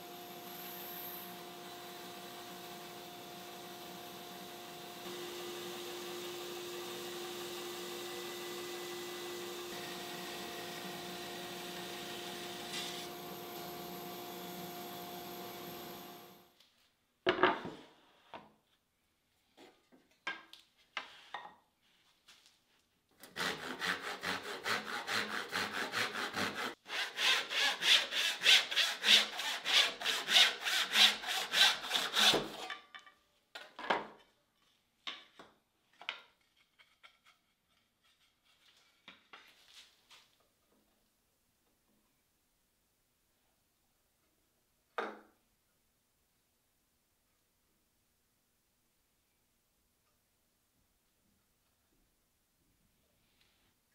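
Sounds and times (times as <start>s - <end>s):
wood and tools knocking on bench: 17.3s - 17.8s, 45.0s - 45.3s
hand saw rasping through wood: 23.2s - 32.6s.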